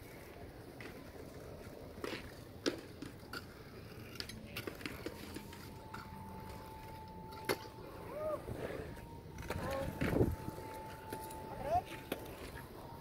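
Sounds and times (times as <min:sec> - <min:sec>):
scooter wheels clacking on concrete: 0:00.1 - 0:08.1.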